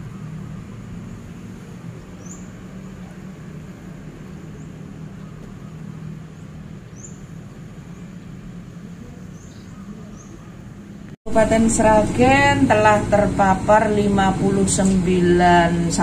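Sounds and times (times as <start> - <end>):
high rising bird chirp: 0.0 - 11.0
steady low hum: 0.0 - 16.0.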